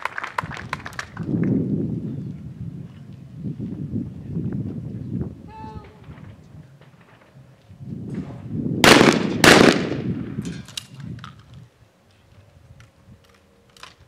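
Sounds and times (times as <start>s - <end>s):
shotgun shots echoing: 8.2s - 10.6s.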